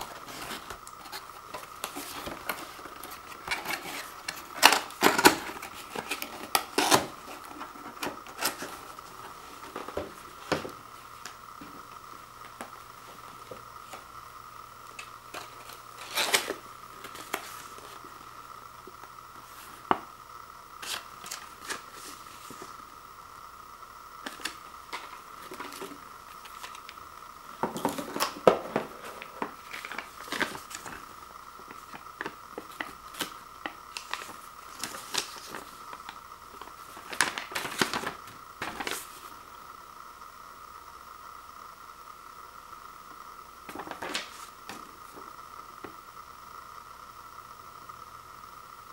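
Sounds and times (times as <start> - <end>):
packaging paper rustling: 0.0 - 11.8, 15.0 - 18.1, 20.8 - 22.8, 24.2 - 39.4, 43.7 - 45.3.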